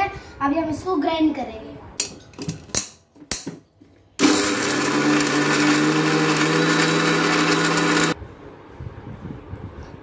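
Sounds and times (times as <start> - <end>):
mixer grinder motor whine: 4.2 - 8.2.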